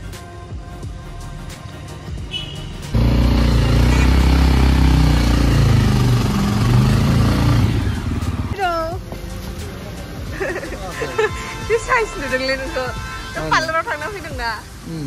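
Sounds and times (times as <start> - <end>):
soft background music: 0.0 - 15.0
motorbike engine running: 2.3 - 8.6.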